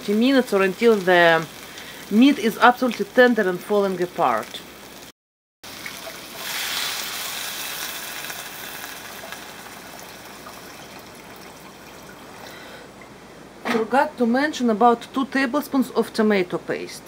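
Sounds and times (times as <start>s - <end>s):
water pouring into a frying pan: 5.7s - 12.4s.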